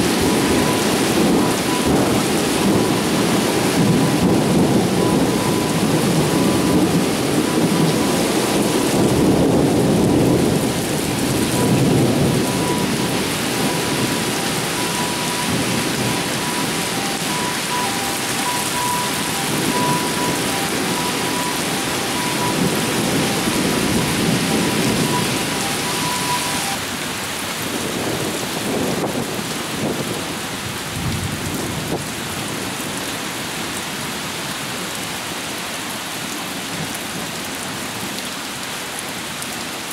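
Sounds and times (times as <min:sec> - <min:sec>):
thunder rumbling: 0:00.0 - 0:26.8
torrential rain pouring: 0:00.0 - 0:39.9.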